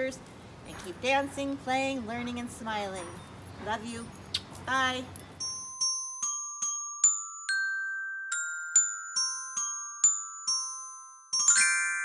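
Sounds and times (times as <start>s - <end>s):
mallet percussion jingle: 5.4s - 12.0s.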